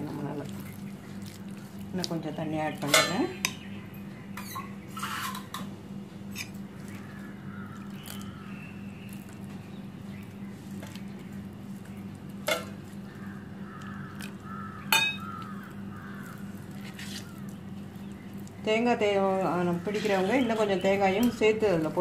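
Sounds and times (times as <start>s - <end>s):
steady low hum: 0.0s - 22.0s
spoon stirring batter in bowl: 6.3s - 13.2s, 15.2s - 18.6s
spoon clinking against bowl: 14.9s - 15.3s.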